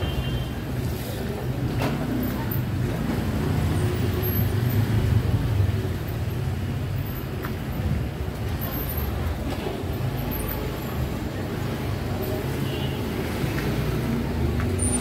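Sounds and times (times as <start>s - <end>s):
urban background noise: 0.0s - 15.0s.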